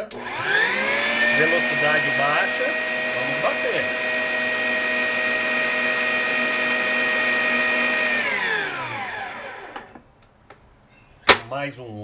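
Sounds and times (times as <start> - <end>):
stand mixer motor humming: 0.0 - 10.0.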